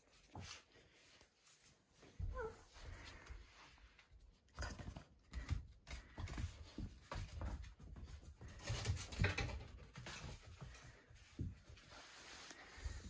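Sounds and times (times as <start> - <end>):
paws scrabbling on tile floor: 0.0 - 13.0.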